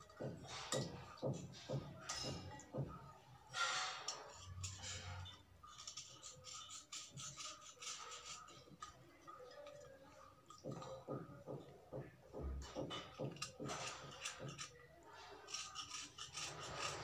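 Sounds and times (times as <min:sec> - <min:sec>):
knife blade scraping slate: 0:15.5 - 0:17.0.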